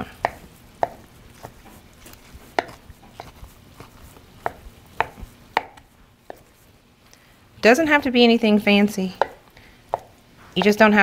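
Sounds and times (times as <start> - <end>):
knife chopping on wooden board: 0.0 - 1.6, 2.5 - 6.5, 9.2 - 10.8.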